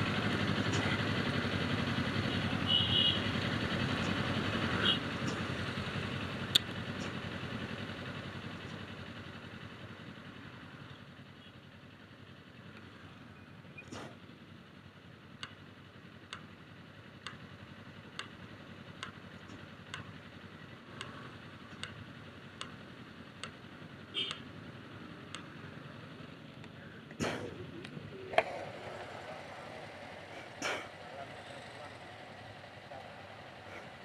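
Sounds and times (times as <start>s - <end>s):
idling engines hum: 0.0s - 34.0s
sharp ticking: 15.3s - 25.9s.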